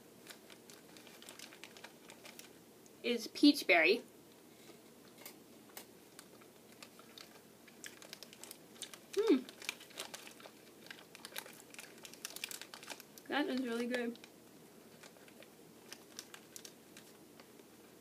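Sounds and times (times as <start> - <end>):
candy package crinkling: 0.2 - 2.6, 6.1 - 17.7
faint chewing: 4.6 - 17.9
person humming: 9.2 - 9.5.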